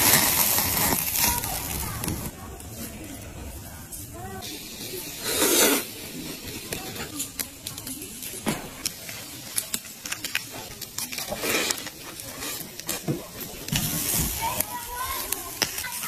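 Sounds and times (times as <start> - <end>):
food sizzling on charcoal grill: 0.0 - 16.0
hissing: 0.0 - 16.0.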